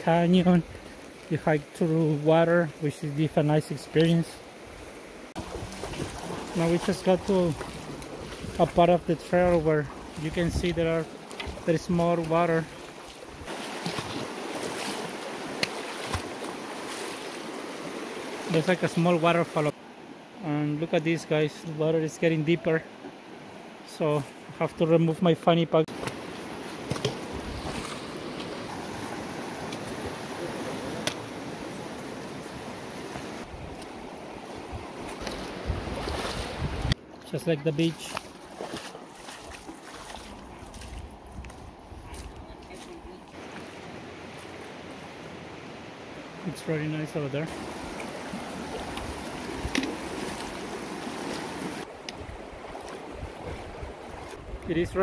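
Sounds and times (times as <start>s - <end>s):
river water rushing over rocks: 3.6s - 20.4s, 25.9s - 37.0s, 43.3s - 54.2s.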